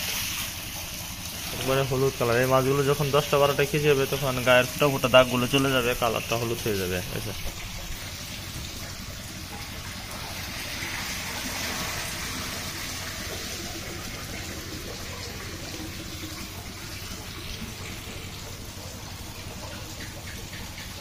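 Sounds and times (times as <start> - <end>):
running water: 0.0 - 21.0.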